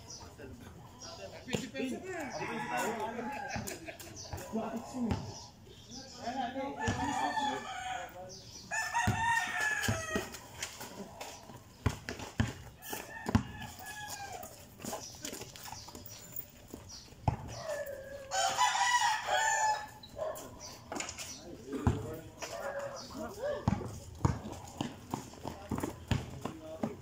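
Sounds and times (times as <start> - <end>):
basketball bouncing on concrete: 1.5 - 2.0, 3.6 - 5.4, 6.8 - 7.1, 9.0 - 10.4, 11.4 - 14.5, 16.7 - 17.6, 21.7 - 27.0
rooster crowing: 2.2 - 3.7, 6.8 - 10.3, 12.8 - 14.5, 17.7 - 20.0.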